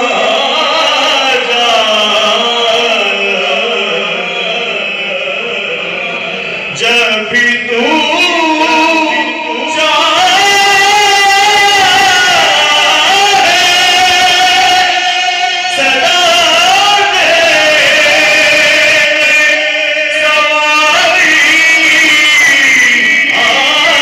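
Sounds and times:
man chanting over loudspeakers: 0.0 - 24.0.

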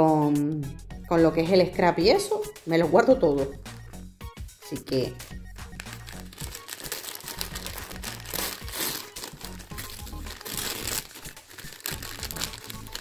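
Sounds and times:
quiet background music: 0.0 - 13.0
wrapping paper crinkling: 5.8 - 13.0.

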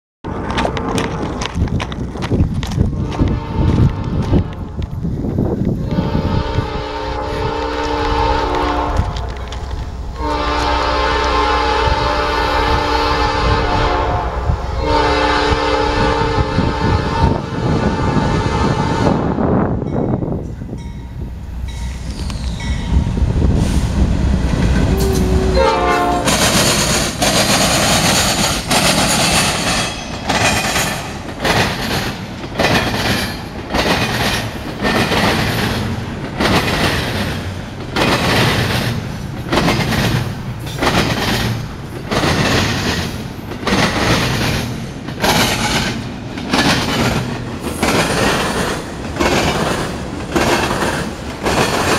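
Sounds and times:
diesel locomotive rumble: 0.2 - 51.9
train cars rolling on rails: 0.2 - 51.9
train air horn blast: 3.0 - 4.6, 5.8 - 9.5, 10.2 - 19.4, 24.8 - 26.8.

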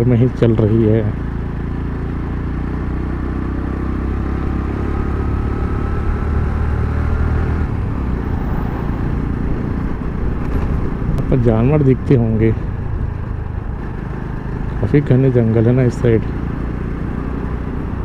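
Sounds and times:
motorcycle engine rumbling: 0.0 - 18.0.

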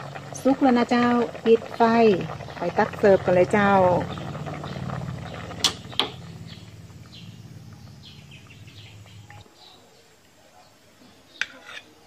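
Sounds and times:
curry bubbling in pot: 0.0 - 9.4
steady low hum: 0.0 - 9.5.

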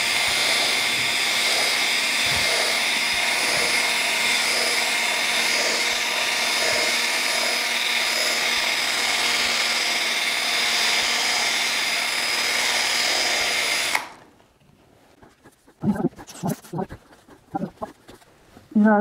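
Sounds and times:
drill buffing wheel whining: 0.0 - 14.2.

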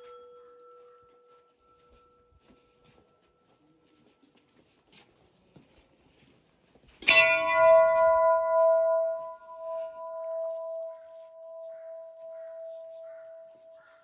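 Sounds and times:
brass bell ringing: 7.0 - 12.6.

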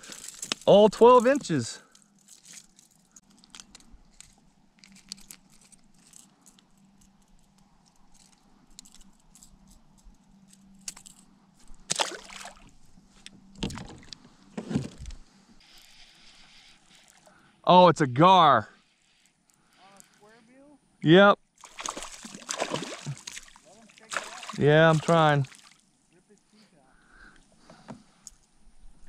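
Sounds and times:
hand splashing in water: 11.9 - 12.7, 21.6 - 25.8.

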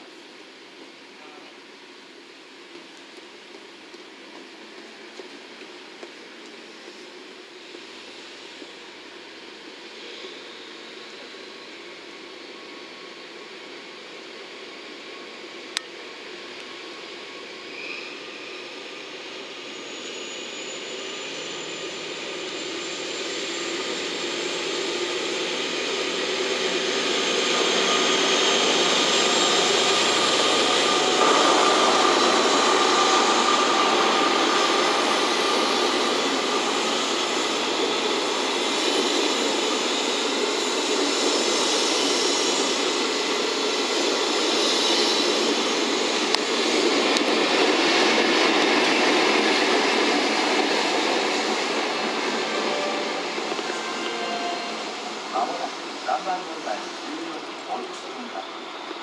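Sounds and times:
diesel locomotive passing: 2.4 - 59.0
train coaches rolling past: 16.0 - 59.0.

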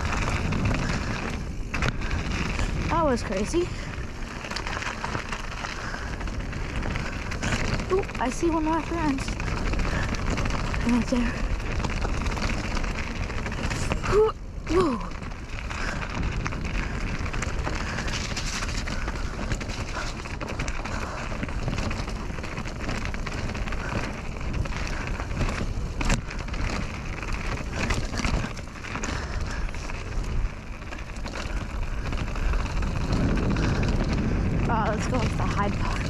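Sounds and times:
bike tyre and frame rattle: 0.0 - 36.0
wind rush on microphone: 0.0 - 36.0.

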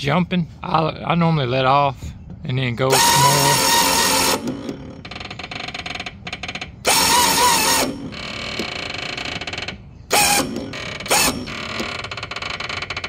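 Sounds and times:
electric winch gear whir: 2.9 - 13.0.

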